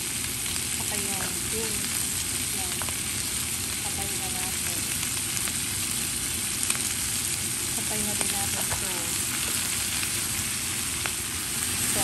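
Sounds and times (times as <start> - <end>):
vegetables sizzling in oil: 0.0 - 12.0.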